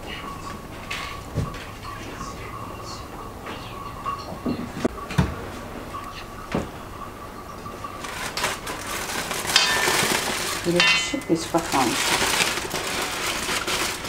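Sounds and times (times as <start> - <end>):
aluminium foil crinkling: 7.9 - 14.0.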